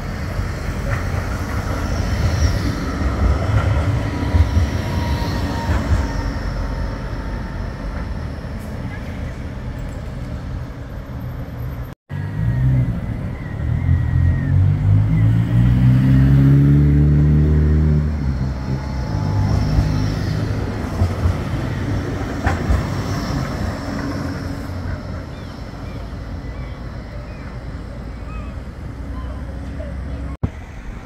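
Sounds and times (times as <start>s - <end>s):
tram motors whining: 0.0s - 15.3s, 16.6s - 31.0s
tram rolling along track: 0.0s - 31.0s.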